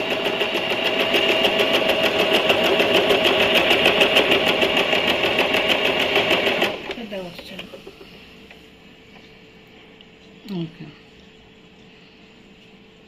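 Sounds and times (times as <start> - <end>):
sewing machine running: 0.0 - 7.0.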